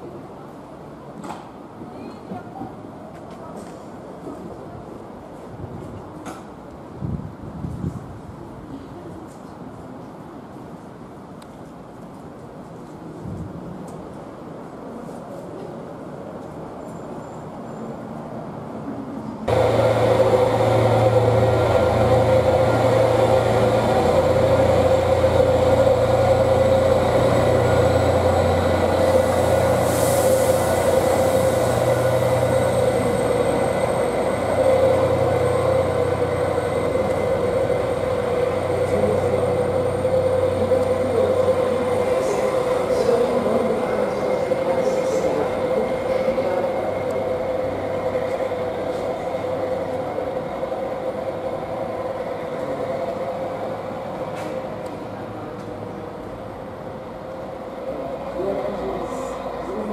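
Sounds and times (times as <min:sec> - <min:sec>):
train low rumble: 0:00.0 - 0:59.9
train whine: 0:19.1 - 0:59.9.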